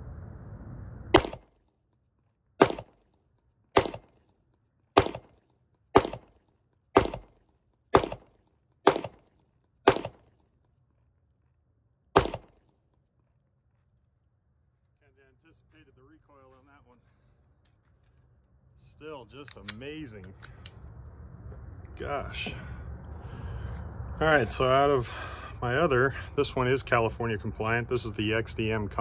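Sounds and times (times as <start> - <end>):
pistol shots: 1.2 - 1.5, 2.6 - 3.0, 3.8 - 4.2, 5.0 - 5.4, 6.0 - 6.4, 7.0 - 10.3, 12.2 - 12.6.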